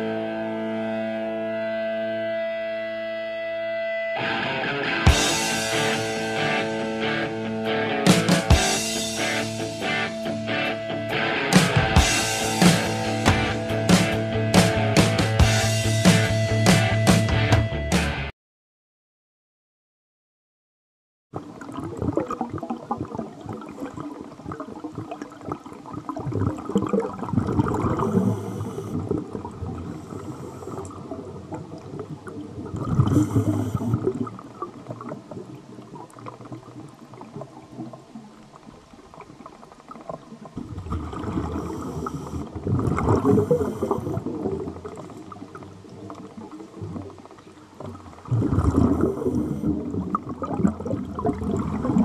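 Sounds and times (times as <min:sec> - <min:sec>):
gurgling bubbles: 0:21.4 - 0:52.0
regulator hiss on inhale: 0:28.0 - 0:29.0, 0:29.9 - 0:31.0, 0:33.1 - 0:34.1, 0:41.4 - 0:42.5, 0:43.4 - 0:44.2.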